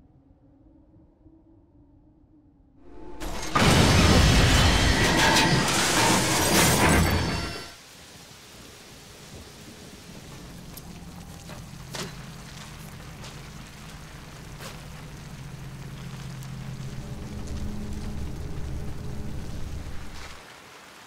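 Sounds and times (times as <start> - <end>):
steady rain: 2.9 - 21.0
low steady hum: 10.4 - 20.4.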